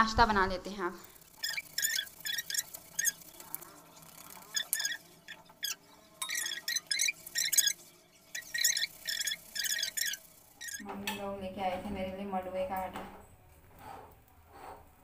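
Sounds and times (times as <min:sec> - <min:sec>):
rolling pin squeaking: 0:01.0 - 0:10.8.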